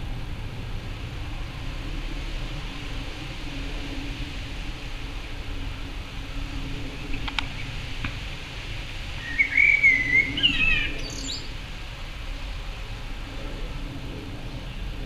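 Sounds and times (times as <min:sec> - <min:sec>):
low background rumble: 0:00.0 - 0:15.0
blackbird singing: 0:09.2 - 0:11.5.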